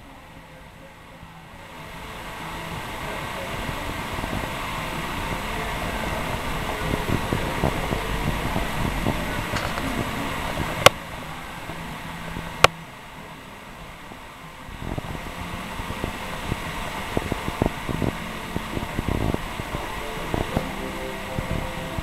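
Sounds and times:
low rumble: 0:00.0 - 0:22.0
camera handling rustle: 0:09.6 - 0:09.9.

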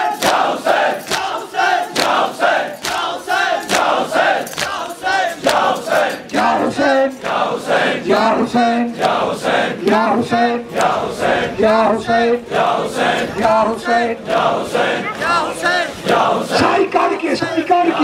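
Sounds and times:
men chanting in unison: 0:00.0 - 0:18.0
hands slapping chests: 0:00.2 - 0:01.4, 0:02.0 - 0:05.7.

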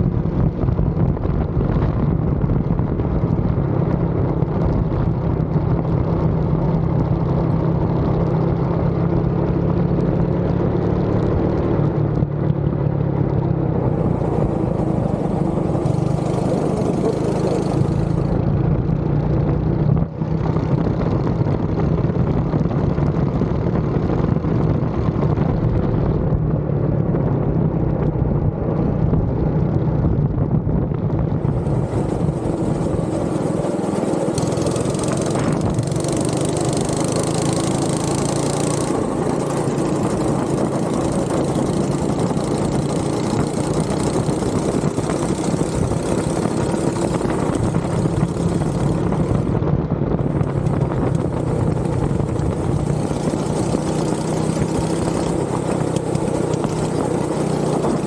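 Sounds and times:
go-kart engine running hard: 0:00.0 - 0:58.0.

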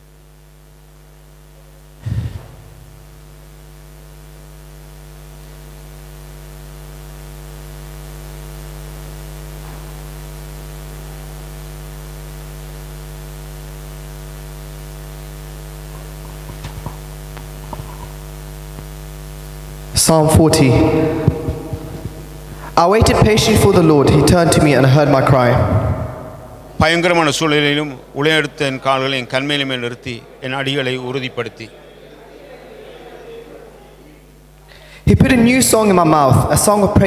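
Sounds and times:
electrical mains hum: 0:00.0 - 0:37.0
loud thump: 0:02.0 - 0:03.4.

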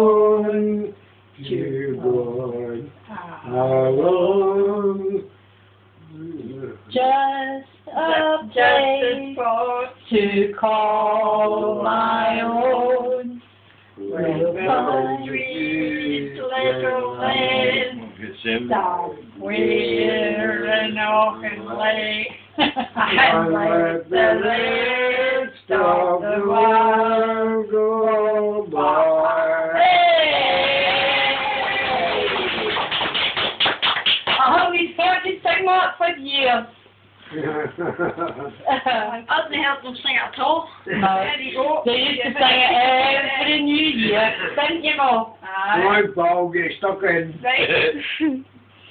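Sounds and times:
woman and man singing unaccompanied: 0:00.0 - 0:05.4, 0:06.0 - 0:32.7, 0:40.8 - 0:46.1
hand clapping: 0:31.7 - 0:34.5.

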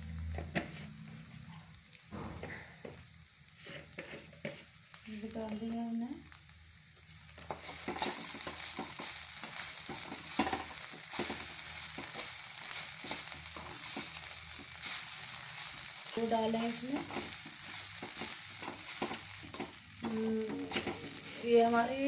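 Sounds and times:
frying sizzle: 0:00.0 - 0:22.0
spatula scraping a pan: 0:03.5 - 0:04.8, 0:07.4 - 0:21.7.

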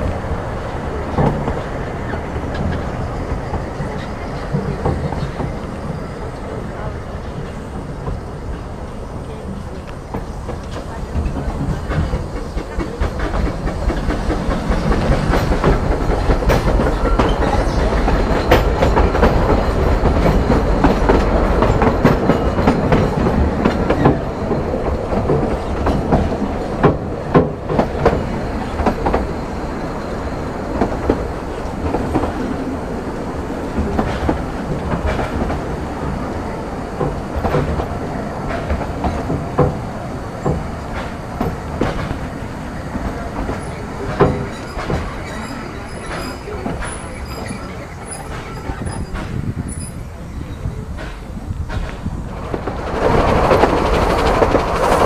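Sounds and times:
wheels clattering over rail joints: 0:06.7 - 0:50.1, 0:50.8 - 0:55.0.

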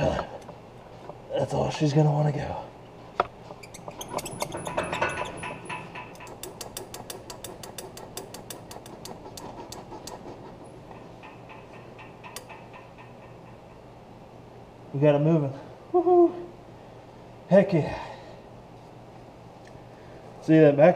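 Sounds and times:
thin high squeak: 0:03.5 - 0:05.8
ratchet wrench clicking: 0:03.6 - 0:10.3, 0:11.2 - 0:13.7.

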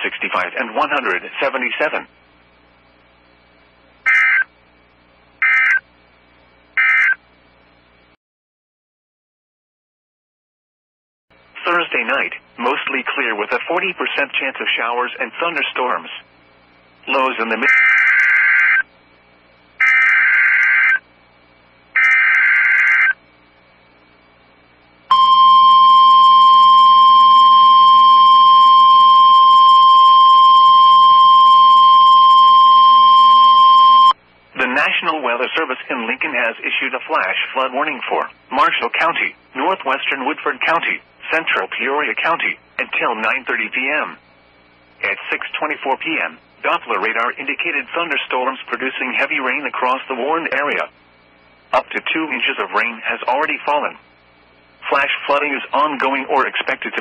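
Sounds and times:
faint radio hiss: 0:00.0 - 0:08.2, 0:11.4 - 0:20.0, 0:22.9 - 0:25.1, 0:27.0 - 0:57.0
steady warning alarm tone: 0:04.1 - 0:04.5, 0:05.4 - 0:05.8, 0:06.8 - 0:07.2, 0:19.8 - 0:21.0, 0:22.0 - 0:23.2, 0:25.1 - 0:34.2
digital data tone bursts: 0:05.4 - 0:05.8
warbling data tones: 0:05.4 - 0:05.8, 0:19.8 - 0:21.0, 0:22.0 - 0:23.2.

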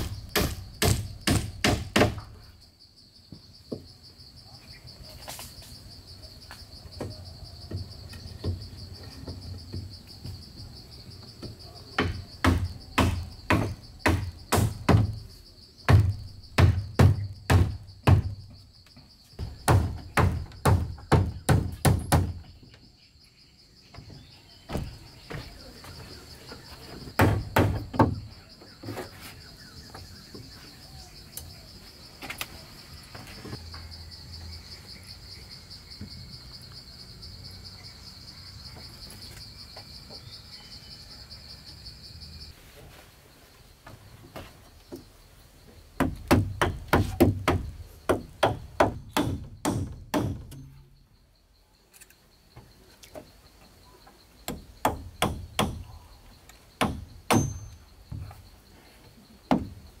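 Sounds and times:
tool striking wood: 0:00.0 - 0:02.3, 0:12.0 - 0:15.2, 0:15.9 - 0:18.4, 0:19.4 - 0:22.4, 0:27.2 - 0:28.2, 0:46.0 - 0:50.8, 0:54.5 - 0:55.9, 0:56.8 - 0:58.3
insects chirring: 0:00.0 - 1:00.0.

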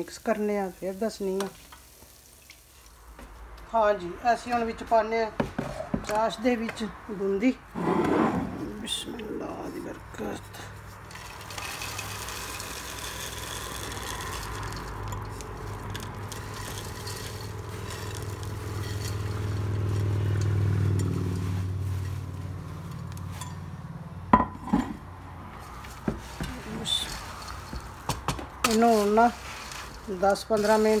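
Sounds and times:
wooden spoon scraping in pot: 0:07.7 - 0:08.9, 0:09.5 - 0:23.6, 0:25.6 - 0:31.0.

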